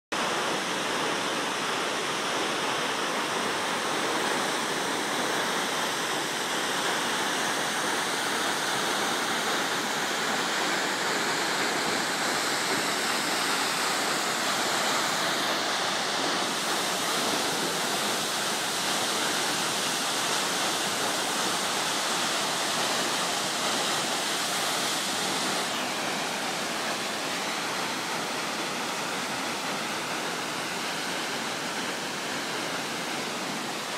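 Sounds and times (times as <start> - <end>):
waterfall rushing: 0.2 - 33.9.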